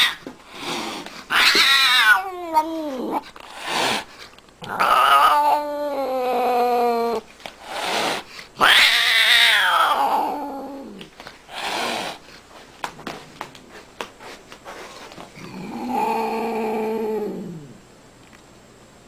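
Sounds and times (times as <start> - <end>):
angry cat yowling: 1.3 - 3.2, 4.6 - 7.2, 8.6 - 11.0.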